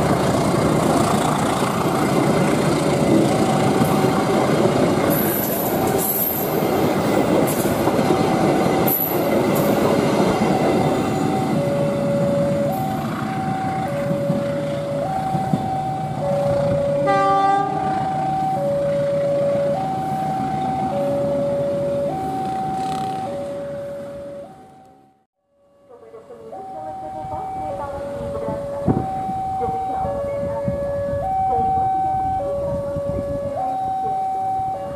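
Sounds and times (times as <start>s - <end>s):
train rumble and wheel clatter: 0.0s - 23.8s
level crossing two-tone alarm: 3.3s - 34.9s
train wheel squeal: 5.1s - 11.6s
train horn blast: 17.0s - 18.0s.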